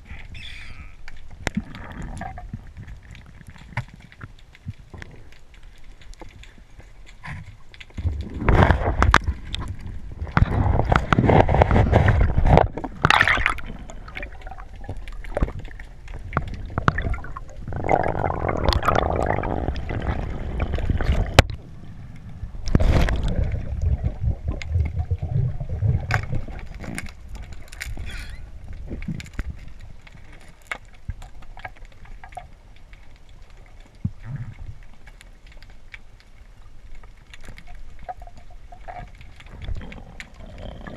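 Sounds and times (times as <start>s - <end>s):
crackling bubble clicks: 0.0s - 40.9s
water sloshing and gurgling: 0.0s - 40.9s.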